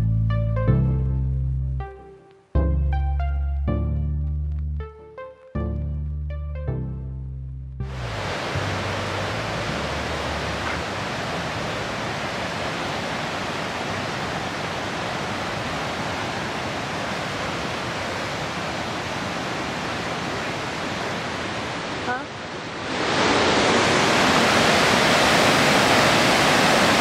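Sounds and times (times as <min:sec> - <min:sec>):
waterfall rushing: 0:07.9 - 0:27.0.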